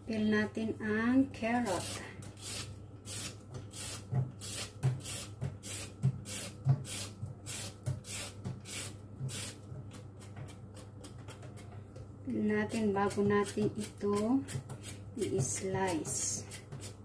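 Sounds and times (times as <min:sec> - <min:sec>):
peeler scraping a carrot: 0:13.1 - 0:17.0.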